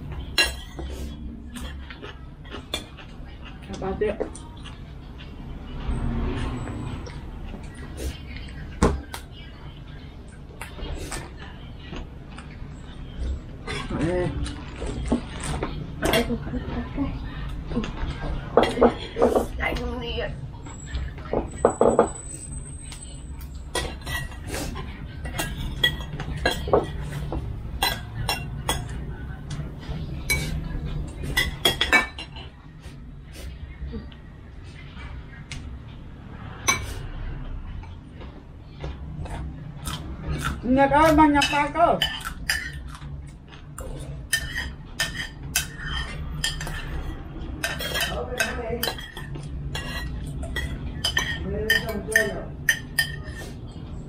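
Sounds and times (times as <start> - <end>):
spoons clinking on plates: 21.3 - 29.0, 30.3 - 32.5, 39.8 - 43.0, 44.3 - 53.6
spoons clinking on ceramic bowls: 41.4 - 43.0, 47.6 - 53.4.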